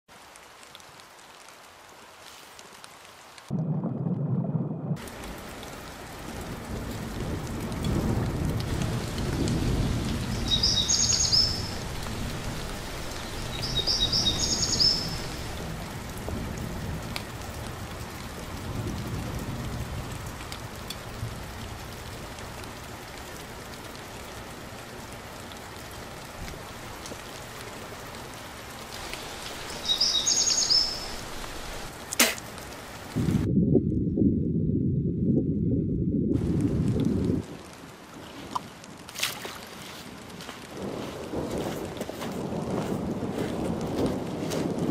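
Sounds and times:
rain and water rushing: 0.0 - 44.9
low rumbles: 3.5 - 5.4, 33.1 - 37.5
bird calling: 10.2 - 11.8, 13.1 - 15.5, 29.0 - 32.4.

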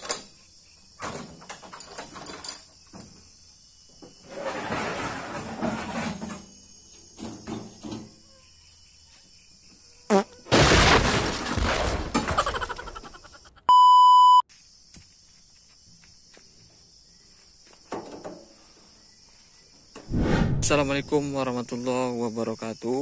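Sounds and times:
insects shrilling: 9.9 - 11.6
loud crash with rattling: 10.5 - 12.7
flat electronic beep: 13.7 - 14.4.

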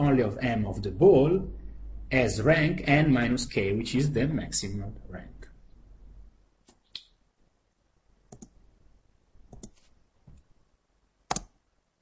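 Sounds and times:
computer mouse clicks: 8.3 - 8.6, 9.5 - 9.9, 11.3 - 11.6.

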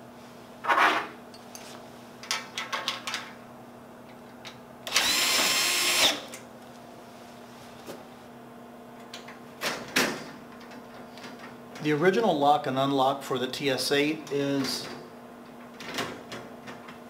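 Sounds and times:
cordless drill driving screw: 4.9 - 6.3.

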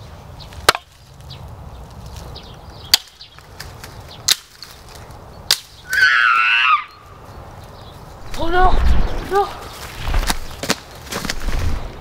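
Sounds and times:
hatchet chopping firewood: 0.6 - 1.0, 2.8 - 5.8, 10.2 - 11.4
loud high-pitched cry: 5.9 - 7.0.

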